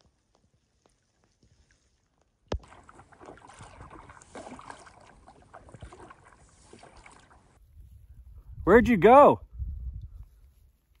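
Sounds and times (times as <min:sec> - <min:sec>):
water splashing around a raft: 0:00.0 - 0:07.6.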